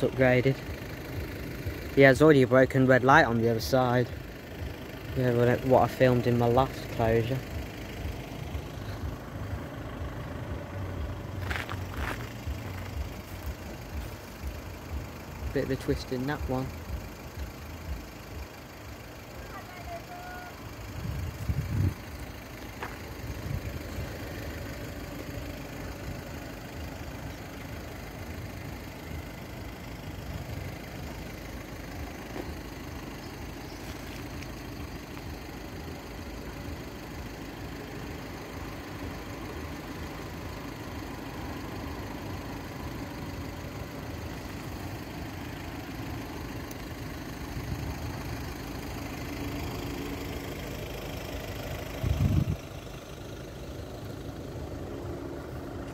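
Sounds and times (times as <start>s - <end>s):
low rumble: 20.9s - 24.8s, 52.0s - 52.8s.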